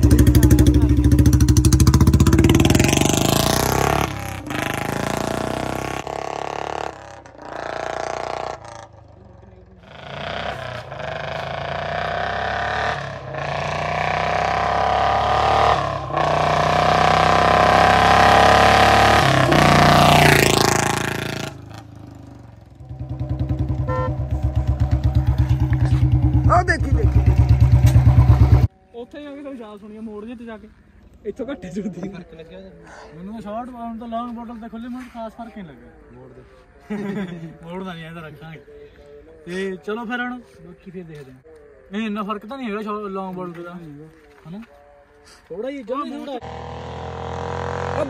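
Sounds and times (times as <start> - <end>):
motorcycle engine idling: 0.0 - 12.1, 19.3 - 29.0
motorcycle engine revving and passing: 0.0 - 28.7, 46.3 - 48.0.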